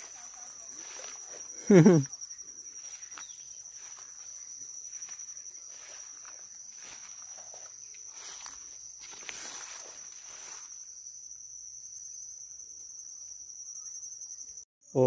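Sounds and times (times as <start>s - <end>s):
footsteps swishing through wet grass: 0.0s - 1.5s, 2.8s - 10.8s
insects trilling: 0.0s - 15.0s.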